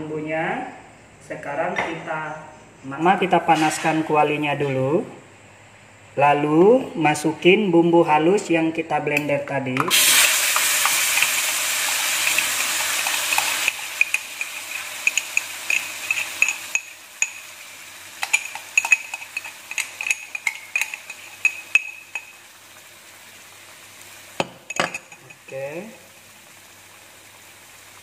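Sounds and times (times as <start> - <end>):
crackling and popping frying: 9.7 - 28.0
spice paste sizzling in wok: 9.9 - 28.0.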